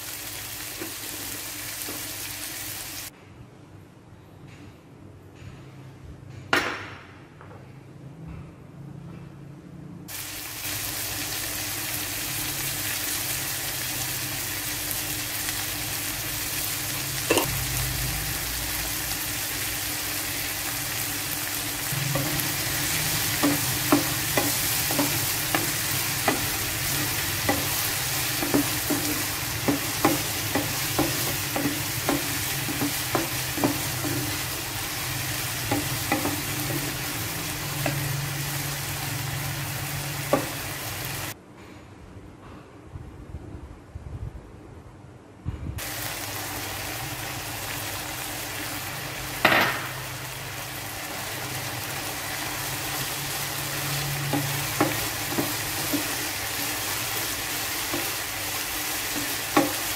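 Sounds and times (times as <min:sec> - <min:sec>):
corn sizzling in oil: 0:00.0 - 0:03.1, 0:10.1 - 0:41.4, 0:45.8 - 0:59.9.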